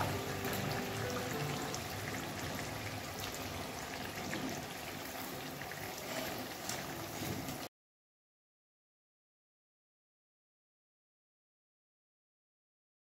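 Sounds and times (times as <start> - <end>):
donuts sizzling in hot oil: 0.0 - 7.7.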